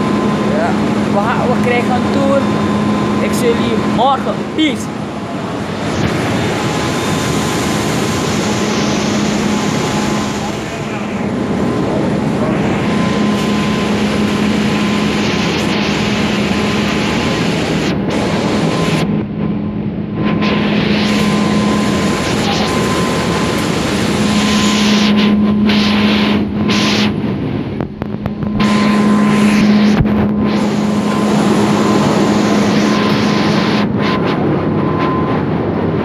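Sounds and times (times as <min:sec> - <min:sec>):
low machinery hum: 0:00.0 - 0:36.0
machinery roaring: 0:00.0 - 0:36.0.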